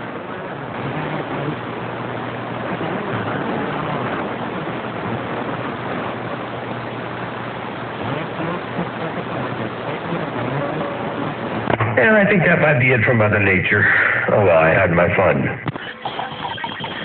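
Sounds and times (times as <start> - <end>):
radio static hiss: 0.0 - 17.0
steady low hum: 0.0 - 17.0.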